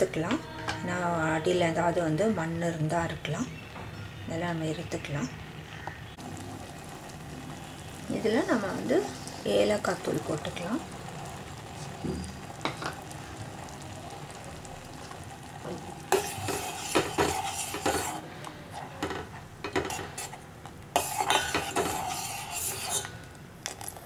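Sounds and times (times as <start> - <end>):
spoon scraping metal pan: 16.0 - 23.2.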